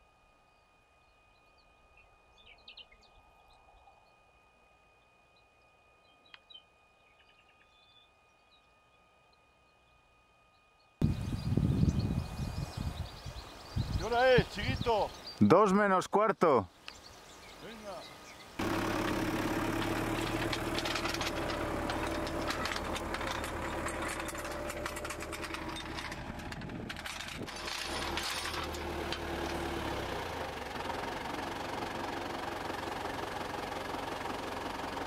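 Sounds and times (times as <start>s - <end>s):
metallic rattle: 18.6s - 29.8s
tractor engine running: 18.6s - 35.0s.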